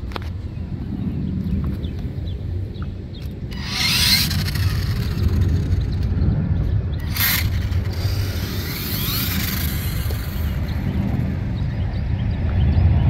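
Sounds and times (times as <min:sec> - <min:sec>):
low rumble: 0:00.0 - 0:13.0
electric toy motor whining: 0:03.5 - 0:06.1, 0:07.0 - 0:11.2.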